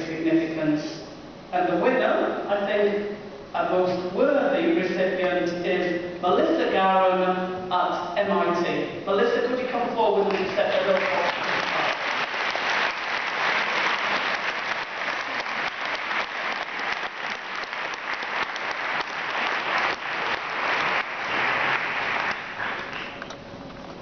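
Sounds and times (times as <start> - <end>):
audience applauding: 10.3 - 23.3.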